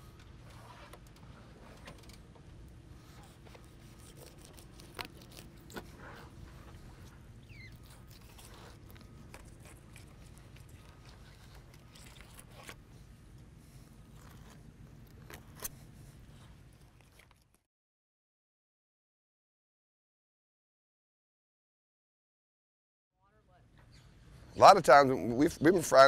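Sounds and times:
low steady rumble: 0.0 - 17.2
knife scraping fish scales: 3.2 - 7.0.

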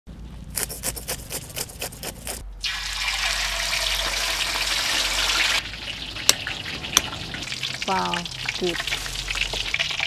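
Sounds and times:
knife scraping fish scales: 0.6 - 2.4
hot oil sizzling: 2.6 - 10.0.

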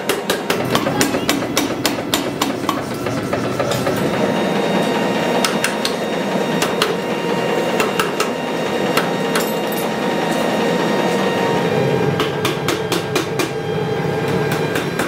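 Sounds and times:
sharp metallic knocks: 0.0 - 4.0
power hammer pounding: 0.0 - 11.1, 11.8 - 15.0.

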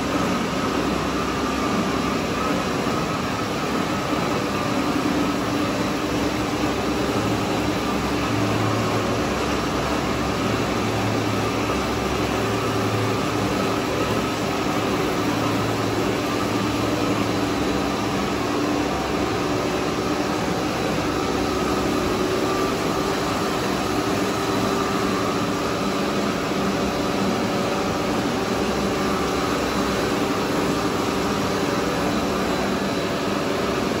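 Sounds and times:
production line machine drone: 0.0 - 34.0.

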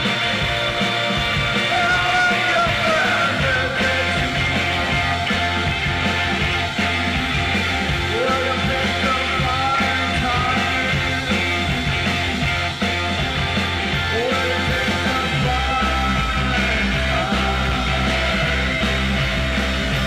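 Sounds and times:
bass guitar: 0.0 - 20.0
drums: 0.0 - 20.0
electric guitar: 0.0 - 20.0
electric keyboard: 0.0 - 20.0
man singing lead: 1.3 - 6.8, 7.4 - 12.0, 13.9 - 19.2.

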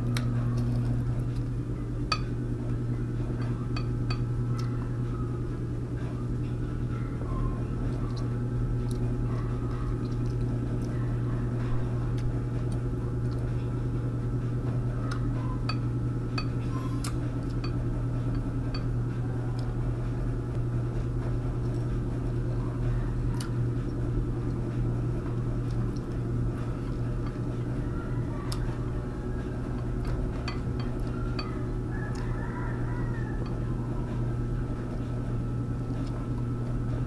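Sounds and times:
steady low hum: 0.0 - 37.0
chewing: 25.3 - 33.8.

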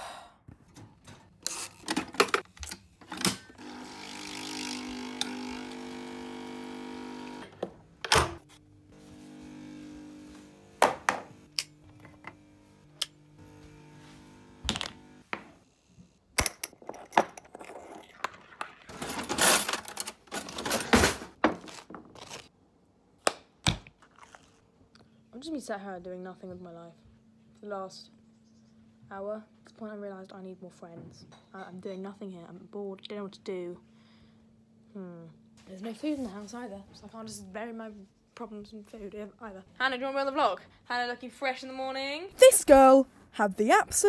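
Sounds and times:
appliance hum: 0.5 - 17.1.

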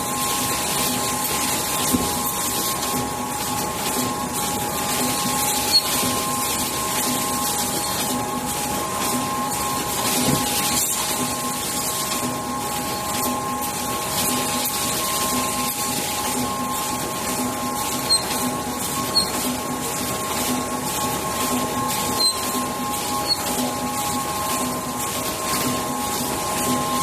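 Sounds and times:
printing machine humming and pulsing: 0.0 - 27.0
short high squeaks: 5.4 - 6.1, 18.0 - 19.4, 22.1 - 22.6, 23.2 - 23.6.

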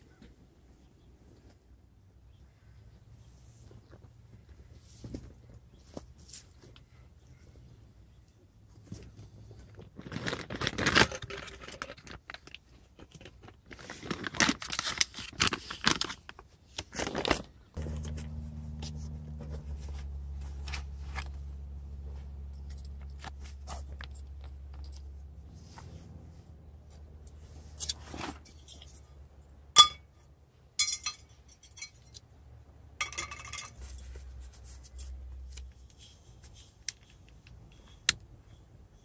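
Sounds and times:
steady low hum: 17.8 - 28.0.

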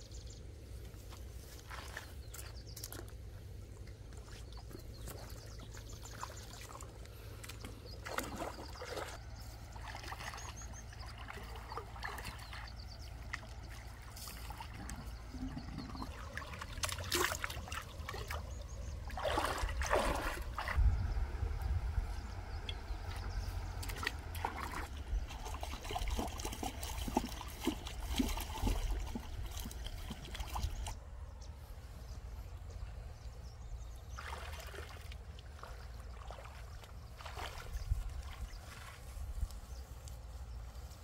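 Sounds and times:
stream water splashing: 1.4 - 31.2, 33.9 - 40.0
steady low rumble: 9.1 - 34.1.

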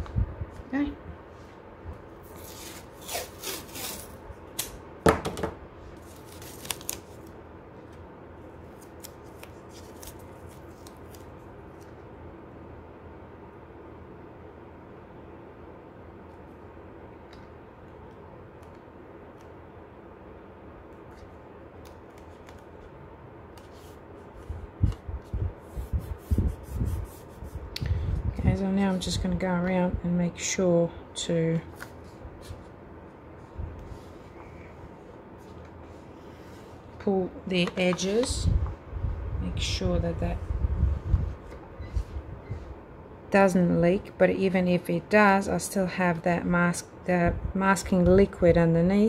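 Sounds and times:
tape rustling and crinkling: 2.2 - 4.8, 6.0 - 8.0, 8.7 - 12.0.

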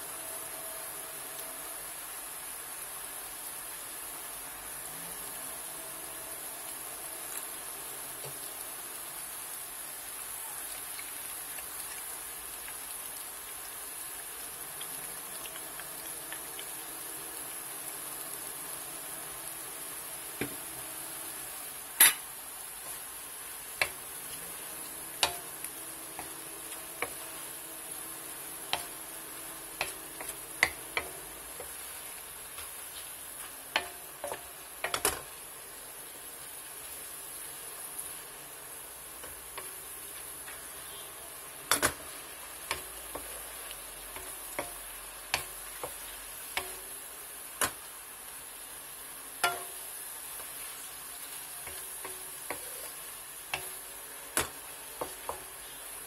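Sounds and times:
vegetables sizzling in butter: 0.0 - 56.0
wooden spatula knocking pan: 25.2 - 25.5, 29.8 - 31.8.

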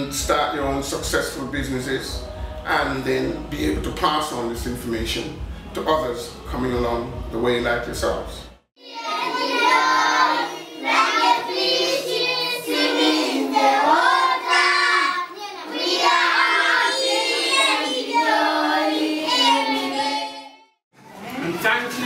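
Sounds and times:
children singing together: 8.8 - 20.6.

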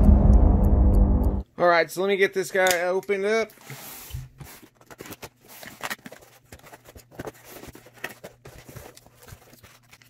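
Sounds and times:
cardboard and tape rustling: 3.4 - 10.0.

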